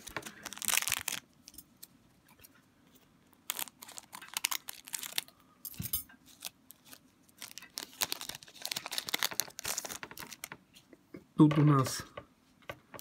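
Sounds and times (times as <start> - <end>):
foil wrapper crinkling: 0.0 - 1.4, 3.3 - 5.4, 6.3 - 10.6.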